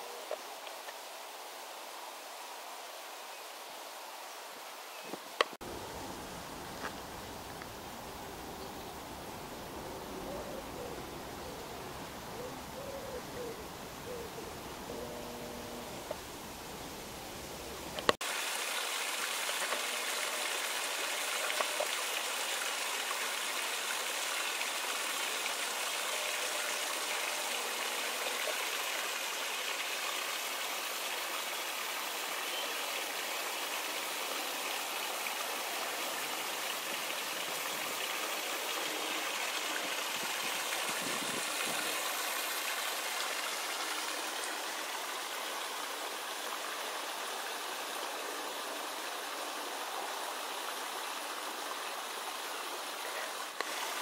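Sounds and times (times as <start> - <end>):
water rushing over weir: 17.9 - 32.4, 33.0 - 49.3, 50.3 - 54.0.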